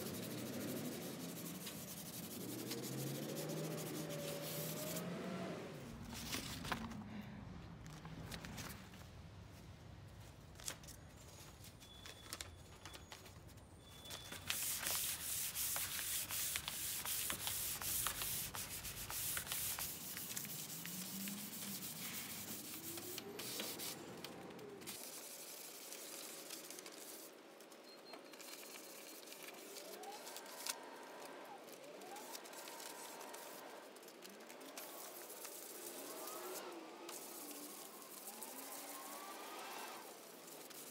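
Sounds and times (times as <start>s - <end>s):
sandpaper rubbing on wood: 0.0s - 5.2s, 14.5s - 24.0s, 24.9s - 27.3s, 32.0s - 40.9s.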